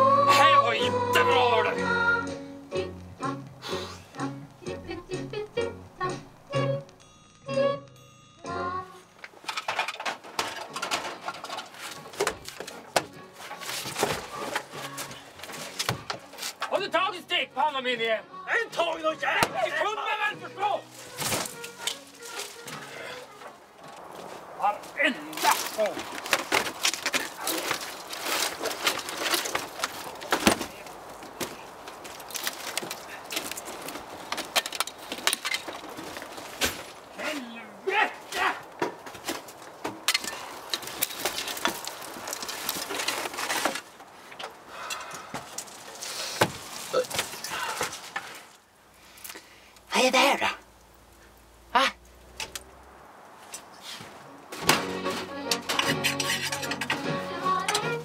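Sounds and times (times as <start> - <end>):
wood fire crackling: 0.0 - 7.1, 8.8 - 58.0
faint music: 0.0 - 26.6, 53.4 - 58.0.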